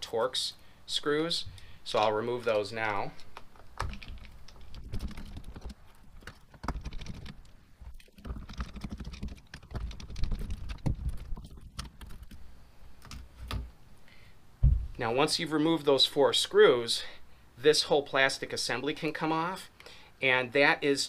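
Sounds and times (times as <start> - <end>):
plastic parts being handled: 2.4 - 13.8.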